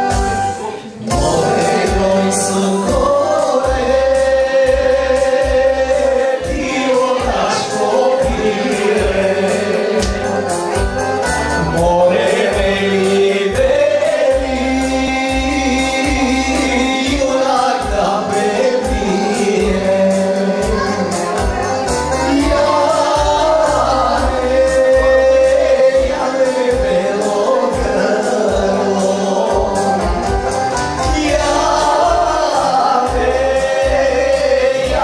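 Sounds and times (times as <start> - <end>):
amplified backing music: 0.0 - 35.0
men singing into microphones: 0.0 - 35.0.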